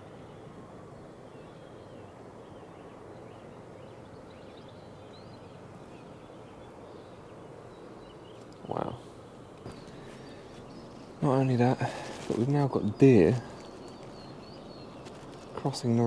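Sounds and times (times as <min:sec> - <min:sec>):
faint birdsong chirps: 0:00.0 - 0:16.0.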